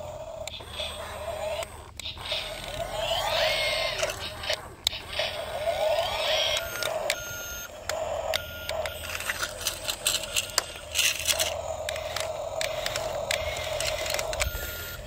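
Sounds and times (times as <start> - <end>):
small electric motors whirring: 0.0 - 15.0
scattered clicks: 6.1 - 14.9
short beeps: 6.5 - 7.7.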